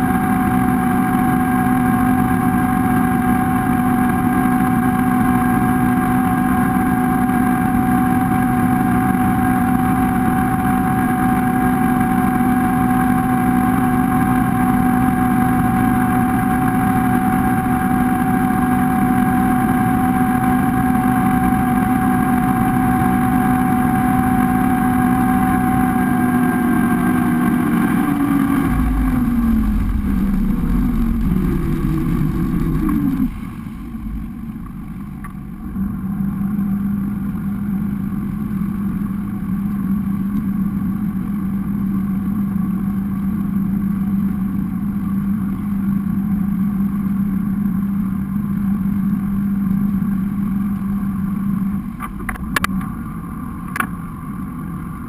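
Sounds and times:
boat engine running: 0:00.0 - 0:55.0
water rushing past hull: 0:22.8 - 0:35.6.

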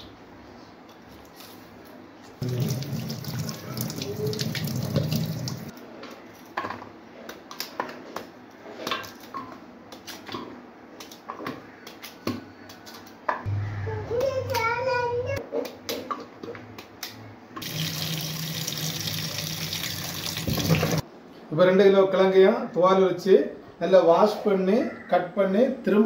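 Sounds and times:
running water: 0:02.4 - 0:05.7, 0:17.6 - 0:21.0.

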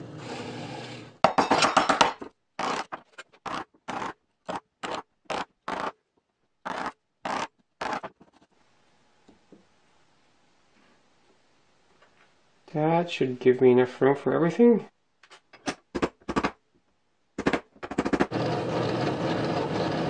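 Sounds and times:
wood chisel scraping wood: 0:02.6 - 0:06.0, 0:06.7 - 0:08.5, 0:18.2 - 0:20.0.

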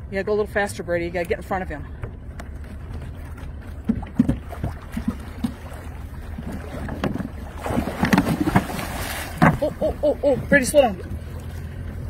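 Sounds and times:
water splashing at boat hull: 0:02.0 - 0:12.0.

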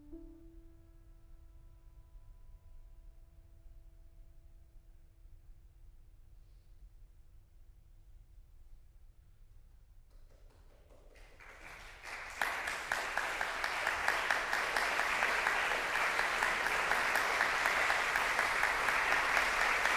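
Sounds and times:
audience applause: 0:11.0 - 0:19.9.

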